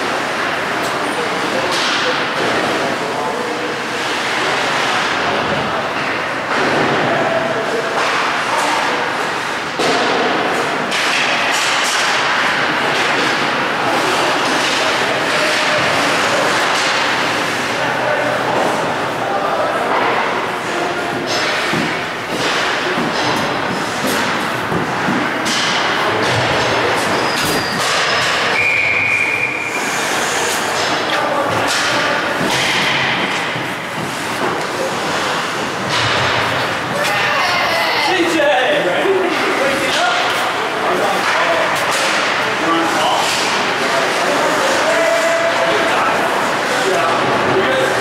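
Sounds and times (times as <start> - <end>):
hockey sticks and puck knocking: 7.9 - 17.8, 19.8 - 28.5, 30.6 - 37.2, 39.3 - 42.4.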